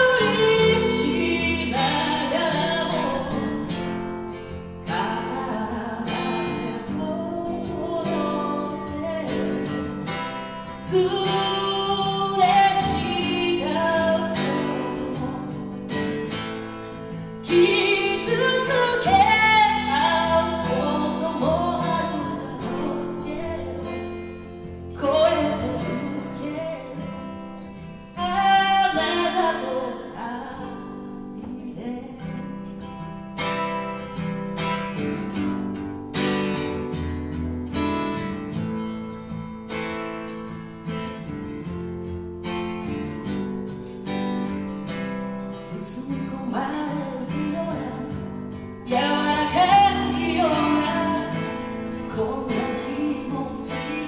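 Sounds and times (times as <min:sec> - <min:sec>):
person singing: 0:00.0 - 0:03.8, 0:04.9 - 0:10.0, 0:10.7 - 0:16.1, 0:17.5 - 0:24.4, 0:45.6 - 0:54.0
acoustic guitars playing: 0:00.0 - 0:54.0.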